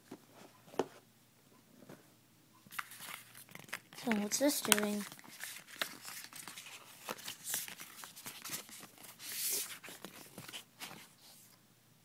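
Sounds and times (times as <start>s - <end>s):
packaging rustling: 2.7s - 11.2s.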